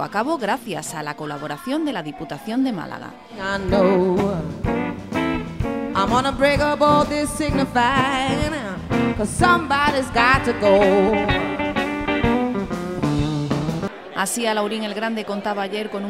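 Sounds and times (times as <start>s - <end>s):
woman singing with vibrato: 3.2s - 4.7s, 6.0s - 11.6s
guitar: 3.2s - 14.0s
electric bass: 3.7s - 13.9s
drum hits: 11.7s - 13.9s.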